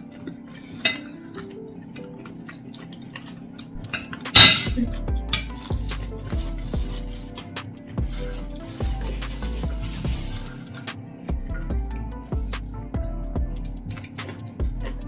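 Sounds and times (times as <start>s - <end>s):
cutlery and dishes clinking: 0.0s - 8.8s, 13.7s - 15.0s
loud dish clatter: 3.9s - 5.5s.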